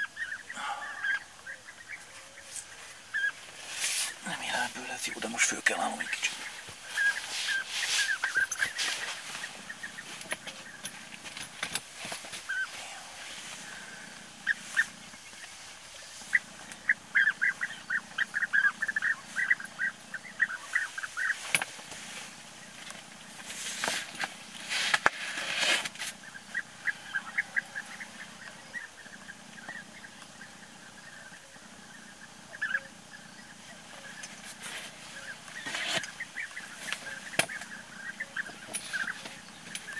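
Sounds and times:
birds calling: 0:00.0 - 0:39.9
rustling and shuffling: 0:02.0 - 0:16.8, 0:20.5 - 0:26.9, 0:33.8 - 0:39.9.

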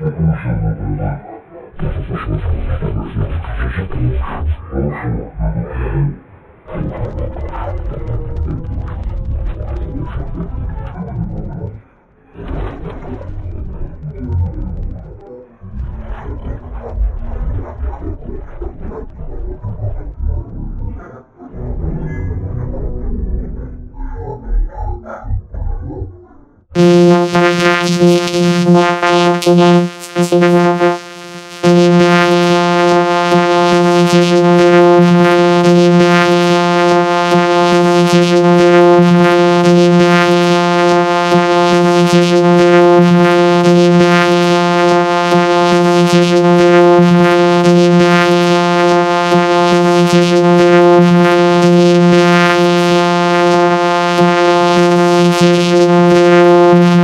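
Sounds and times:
steady electronic drone: 0:00.0 - 0:00.2, 0:21.5 - 0:24.4, 0:26.8 - 0:57.0.

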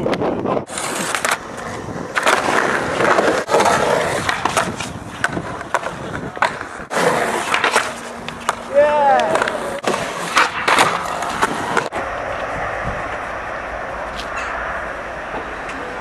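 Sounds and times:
skateboard wheels rolling on concrete: 0:00.0 - 0:16.0
skateboard clacking on ramp: 0:07.4 - 0:12.0.

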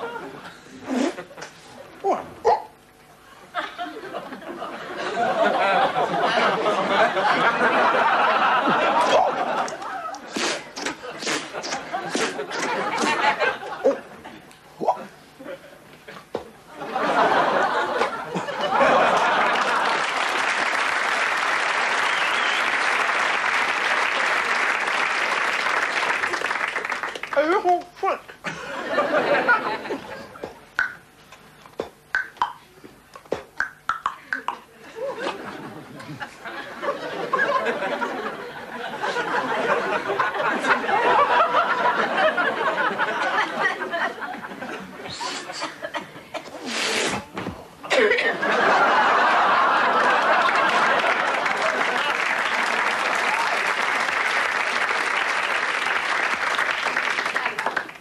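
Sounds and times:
audience laughing: 0:00.0 - 0:01.8, 0:03.3 - 0:14.5, 0:15.4 - 0:20.9, 0:28.4 - 0:30.6, 0:34.7 - 0:47.1, 0:47.8 - 0:55.2
audience applauding: 0:18.7 - 0:27.6, 0:48.7 - 0:58.0.

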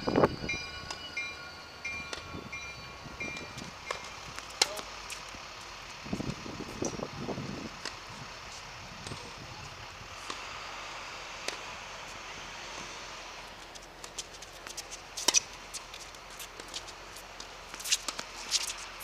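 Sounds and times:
footsteps and shoe scuffs on court: 0:12.0 - 0:19.0.

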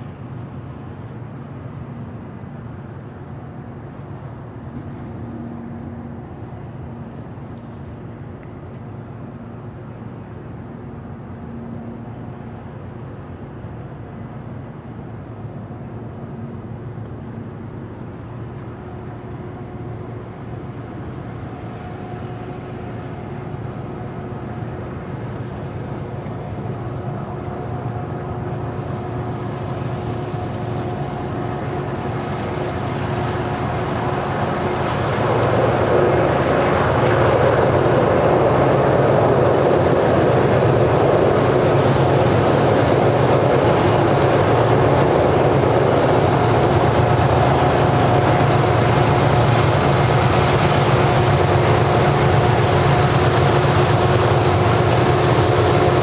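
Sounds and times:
diesel locomotive engines droning: 0:00.0 - 0:56.0.

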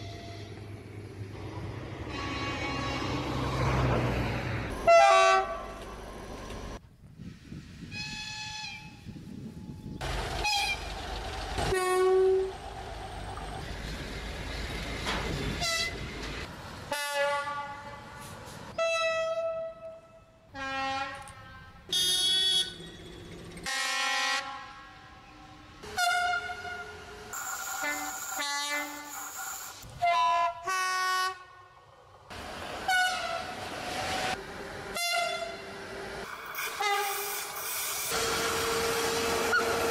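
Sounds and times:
locomotive horn blasts: 0:02.0 - 0:03.4, 0:04.8 - 0:05.8, 0:11.7 - 0:12.5, 0:15.6 - 0:16.0, 0:16.9 - 0:22.9, 0:23.6 - 0:27.0, 0:27.8 - 0:29.1, 0:30.0 - 0:31.6, 0:32.9 - 0:33.5, 0:34.9 - 0:35.6
trains running: 0:09.3 - 0:19.0, 0:22.0 - 0:39.9.

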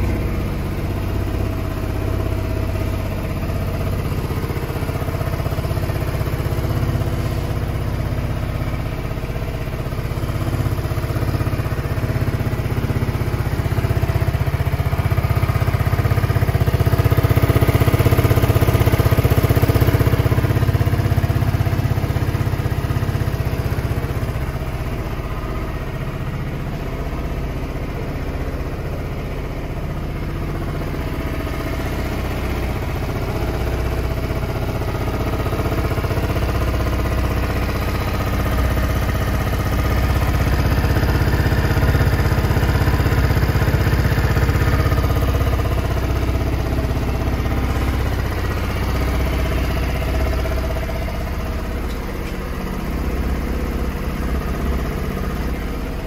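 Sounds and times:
scooter engine idling: 0:00.0 - 0:56.0.

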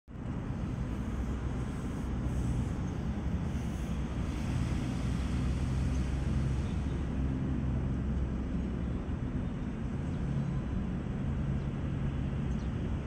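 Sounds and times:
excavator diesel engine hum: 0:00.1 - 0:12.9.

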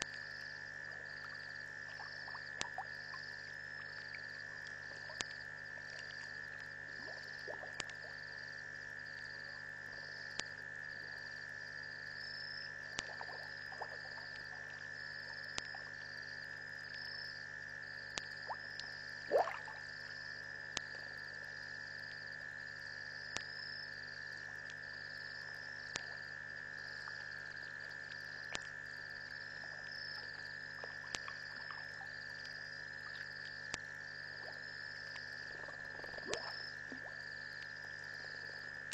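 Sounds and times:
frogs and insects droning: 0:00.0 - 0:38.9
faint clicks: 0:03.8 - 0:06.7, 0:07.8 - 0:08.0, 0:10.3 - 0:10.5, 0:15.5 - 0:16.1, 0:25.9 - 0:26.2.

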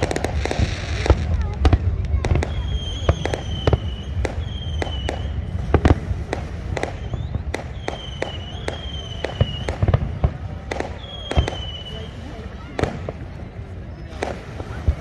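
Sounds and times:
fireworks bursting: 0:00.0 - 0:15.0
high whistling tone: 0:06.9 - 0:09.8.

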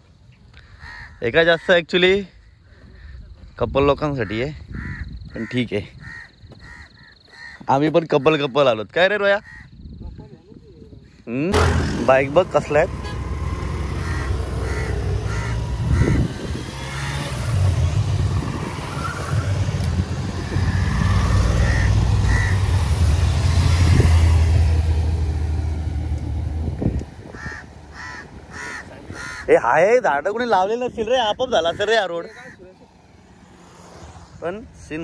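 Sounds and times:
rumble of road traffic: 0:00.0 - 0:35.0.

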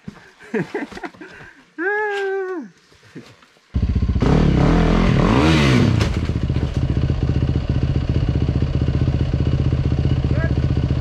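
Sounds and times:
motorcycle engine revving and idling: 0:03.8 - 0:11.0.

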